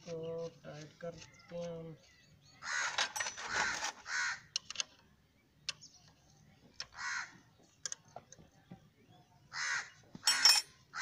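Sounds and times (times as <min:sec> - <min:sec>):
crow cawing: 0:02.6 - 0:03.0, 0:04.0 - 0:04.5, 0:07.0 - 0:07.4, 0:09.5 - 0:11.0.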